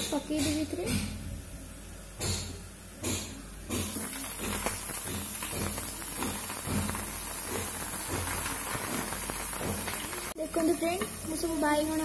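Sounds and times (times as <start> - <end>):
food sizzling in hot oil: 3.7 - 12.0.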